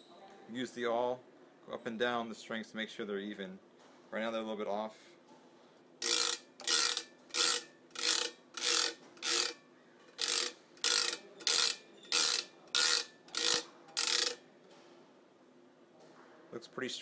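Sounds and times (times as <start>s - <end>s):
awl rasping across racket strings: 6.0s - 14.4s.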